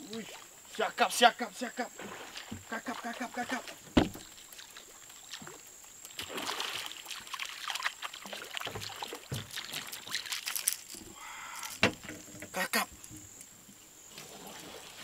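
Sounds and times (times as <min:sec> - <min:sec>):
water splashing against boat: 0:00.0 - 0:13.4
sharp knock: 0:04.0 - 0:04.2.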